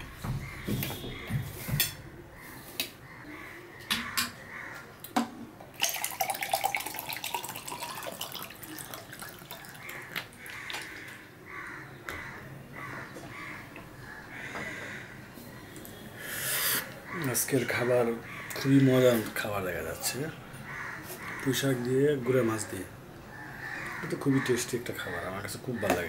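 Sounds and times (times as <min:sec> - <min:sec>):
person drinking: 0:05.8 - 0:11.2
water pouring into a glass: 0:05.8 - 0:11.2.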